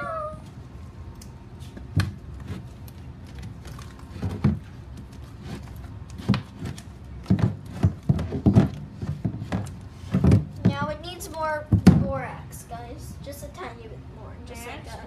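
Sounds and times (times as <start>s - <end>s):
soft thumps and knocks: 6.2s - 10.9s.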